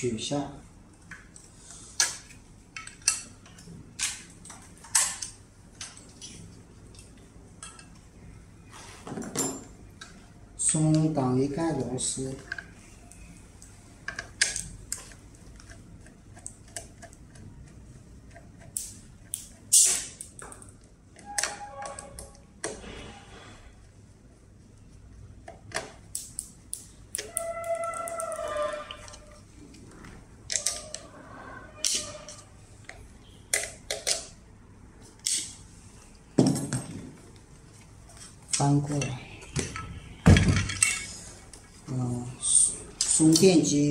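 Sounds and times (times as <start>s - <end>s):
screwdriver metallic clicks and scrapes: 31.8s - 32.4s.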